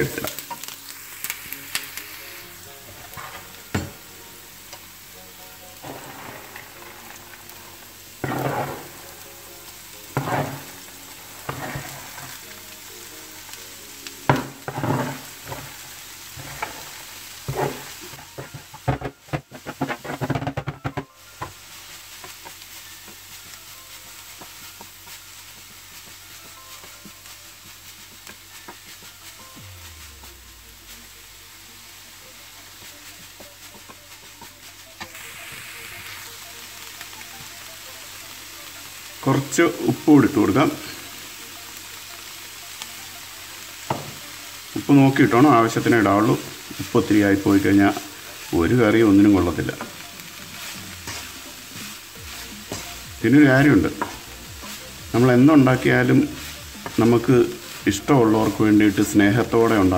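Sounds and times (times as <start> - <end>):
wooden spatula scraping and knocking: 0.0 - 0.9, 2.4 - 12.8, 14.2 - 31.1, 43.8 - 59.9
onions sizzling in hot oil: 0.0 - 59.9.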